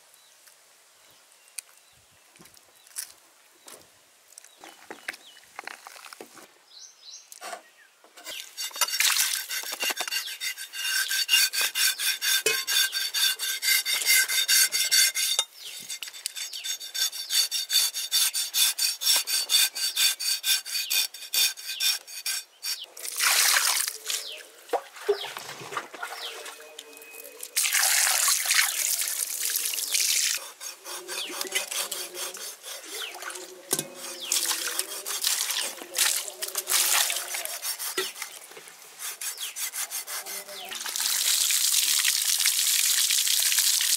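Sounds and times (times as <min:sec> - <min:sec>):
metallic scraping strokes: 0:08.2 - 0:22.9, 0:30.4 - 0:35.9, 0:39.0 - 0:40.7.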